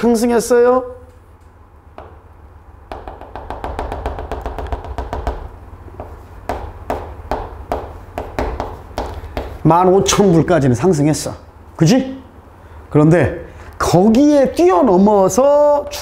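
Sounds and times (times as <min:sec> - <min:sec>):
pen tapping and scratching on board: 0:02.9 - 0:09.6.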